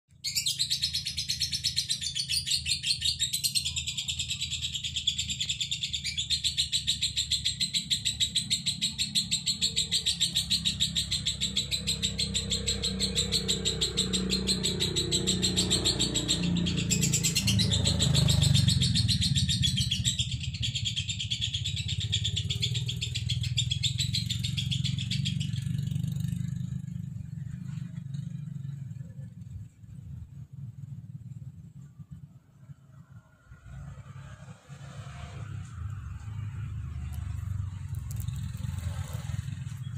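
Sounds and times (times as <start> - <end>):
lovebird chattering: 0.1 - 27.6, 35.9 - 39.9.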